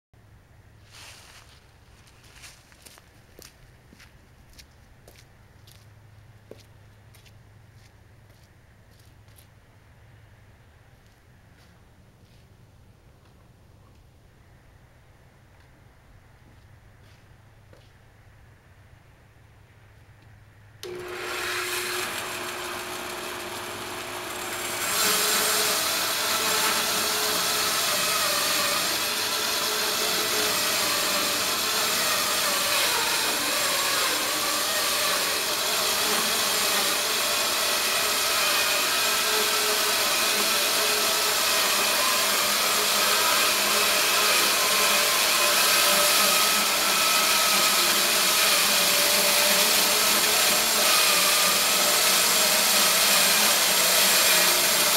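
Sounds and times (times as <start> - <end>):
bandsaw cutting through log: 20.8 - 54.9
bandsaw running: 20.8 - 54.9.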